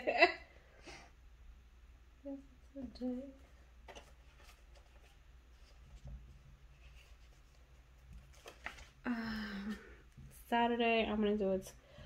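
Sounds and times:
low steady hum: 0.0 - 12.0
paper rustling and tapping: 3.8 - 9.0.

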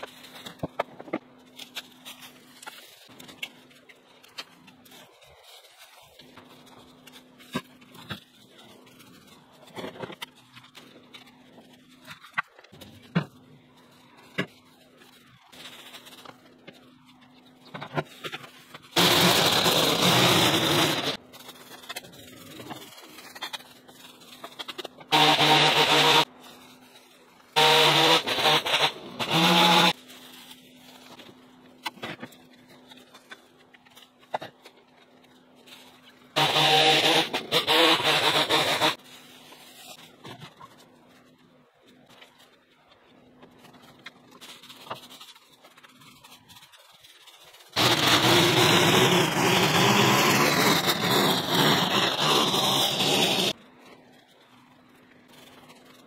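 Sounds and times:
motor-driven power tool running: 19.0 - 21.2.

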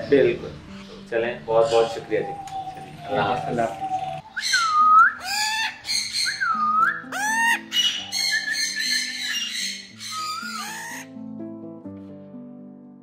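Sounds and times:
background music: 0.0 - 13.0
parrot squawking harshly: 4.4 - 11.1.

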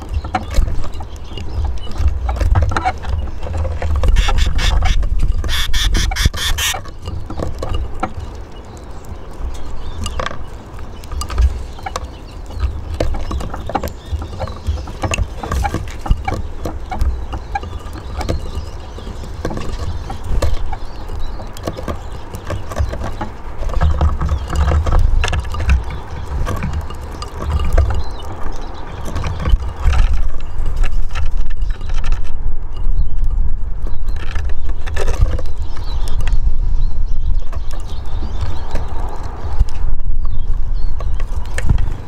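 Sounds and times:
birds tapping on a feeder: 0.0 - 32.2.

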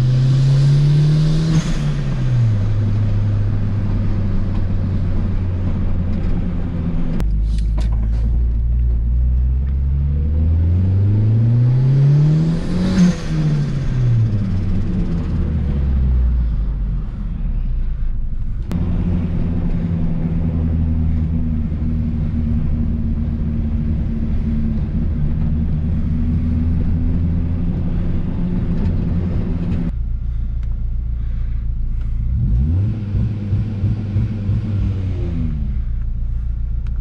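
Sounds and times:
car engine running and revving: 0.0 - 37.0.

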